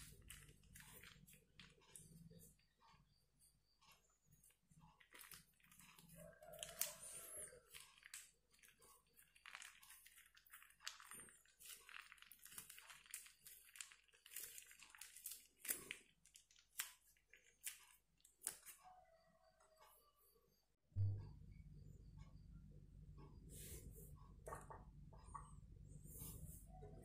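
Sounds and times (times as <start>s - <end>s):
cloth crinkling with wet slime: 0.0s - 2.4s, 4.5s - 18.8s.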